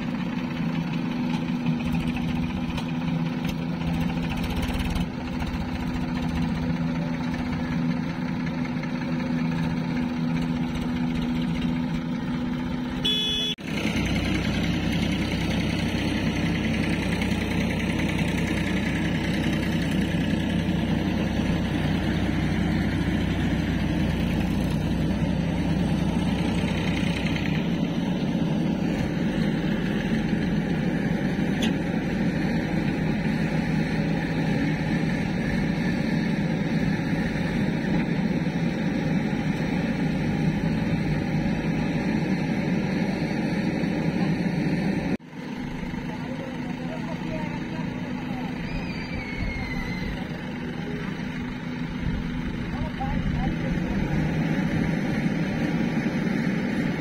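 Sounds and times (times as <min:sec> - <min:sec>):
backhoe diesel engine running: 0:00.0 - 0:57.0
tractor diesel engine running: 0:00.0 - 0:57.0.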